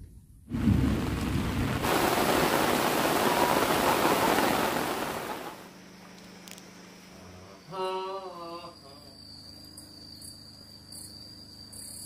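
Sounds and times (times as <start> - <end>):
heavy rain on water: 0.5 - 5.7.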